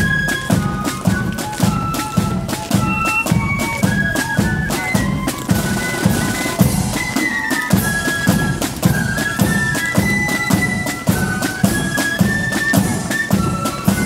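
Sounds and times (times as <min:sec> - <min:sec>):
drums beating march rhythm: 0:00.0 - 0:14.0
flutes playing melody: 0:00.0 - 0:14.0.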